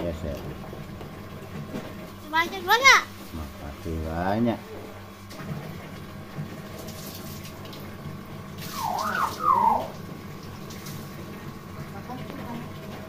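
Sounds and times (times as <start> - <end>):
myna bird calling: 8.6 - 10.0.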